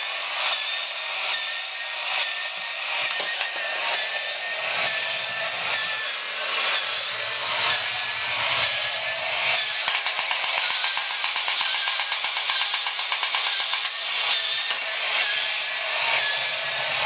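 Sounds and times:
toy motor and gears whirring: 0.0s - 17.0s.

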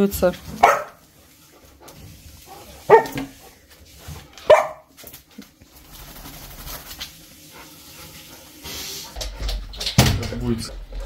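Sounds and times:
dog barking: 0.6s - 1.0s, 2.8s - 3.4s, 4.4s - 4.9s.

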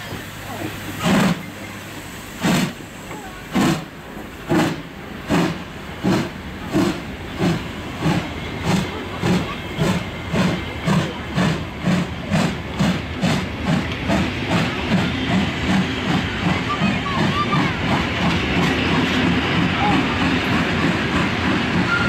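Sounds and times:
steam locomotive chuffing: 0.0s - 22.0s.

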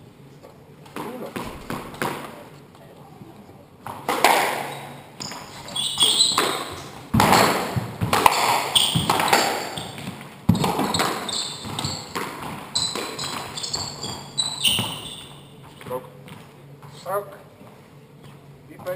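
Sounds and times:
squash ball cracking off rackets: 0.9s - 2.4s, 3.8s - 15.8s
shoes squeaking on wooden floor: 4.6s - 17.0s.

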